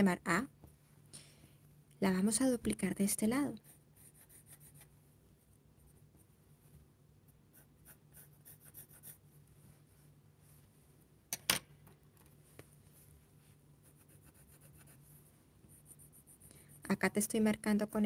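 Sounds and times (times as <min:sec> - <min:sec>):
pencil scratching on paper: 0:03.6 - 0:04.9, 0:07.5 - 0:09.2, 0:13.8 - 0:16.9.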